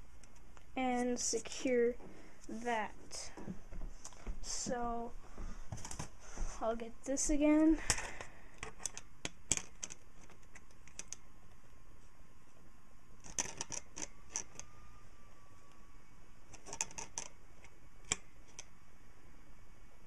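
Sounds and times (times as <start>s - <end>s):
pliers clicking and scraping on metal: 13.2s - 14.7s, 16.5s - 17.3s.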